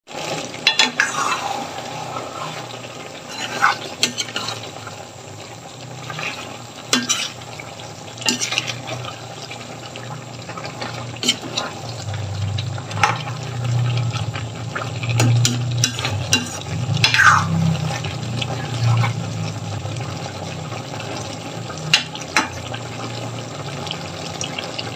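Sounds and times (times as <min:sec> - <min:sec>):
vegetables sizzling: 0:00.1 - 0:24.9
spoon scraping pan: 0:00.6 - 0:04.8, 0:06.0 - 0:07.5, 0:08.2 - 0:09.3, 0:10.5 - 0:14.3, 0:15.1 - 0:19.3, 0:21.9 - 0:22.7
low steady hum: 0:05.0 - 0:23.6.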